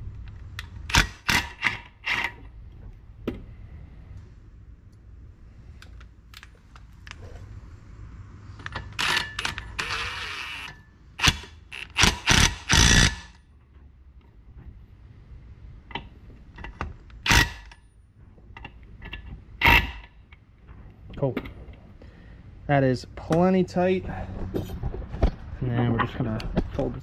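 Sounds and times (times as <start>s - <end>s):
impact wrench bursts: 8.7s - 13.4s, 17.2s - 17.8s.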